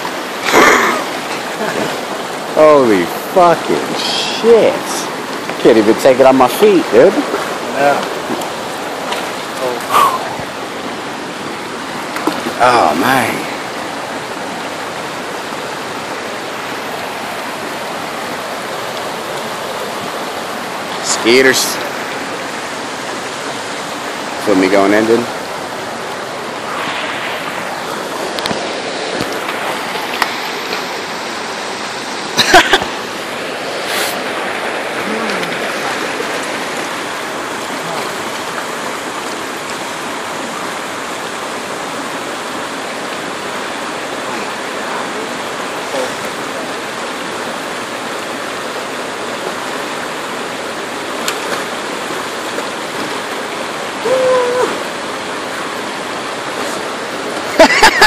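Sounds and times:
creek rushing over rocks: 0.0s - 58.0s.

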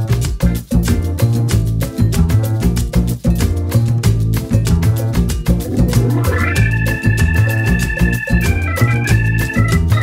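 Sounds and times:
dance music with pulsing bass: 5.1s - 10.0s.

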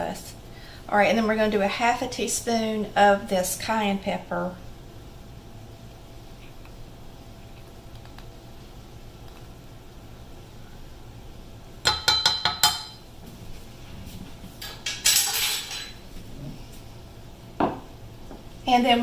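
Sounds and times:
metal spoon clinking on saucepan: 11.8s - 13.0s.

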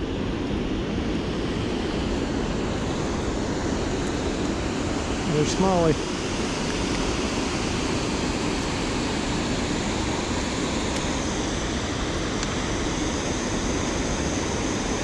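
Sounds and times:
water roaring over spillway: 0.0s - 15.0s.

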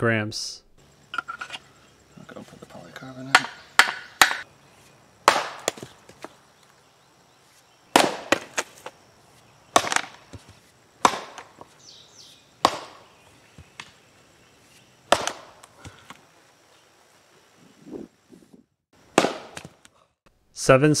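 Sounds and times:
axe chopping logs: 3.2s - 4.5s, 5.2s - 6.4s, 7.9s - 9.0s, 9.7s - 14.0s, 15.1s - 16.2s, 19.0s - 20.0s.

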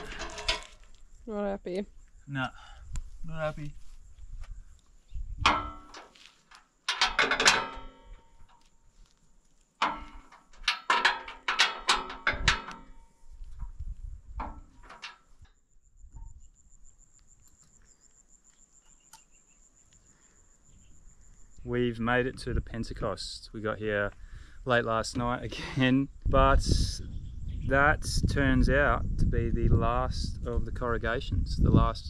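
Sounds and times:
sharp knocks and clatter: 0.0s - 0.8s, 5.4s - 8.7s, 9.8s - 15.6s
insect trilling: 15.3s - 21.8s.

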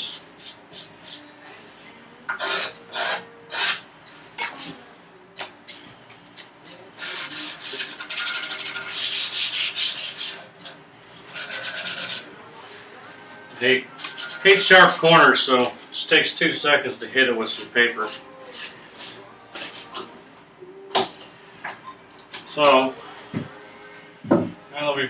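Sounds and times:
hand sanding wood: 7.0s - 10.4s, 11.3s - 12.2s.

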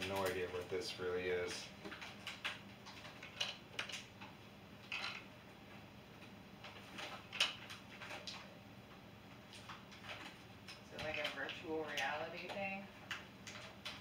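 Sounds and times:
plastic snorkel kit clicks and rustles: 1.8s - 5.3s, 6.6s - 8.5s.

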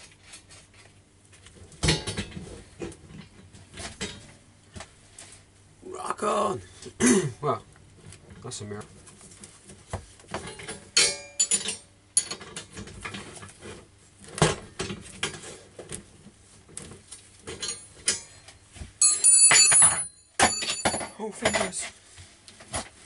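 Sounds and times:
metal tools clinking: 10.5s - 12.6s, 17.5s - 21.9s
ringing metallic clatter: 19.0s - 21.8s.

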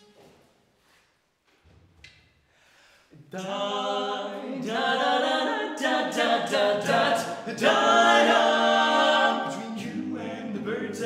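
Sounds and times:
male vocal quartet singing: 3.3s - 11.0s.

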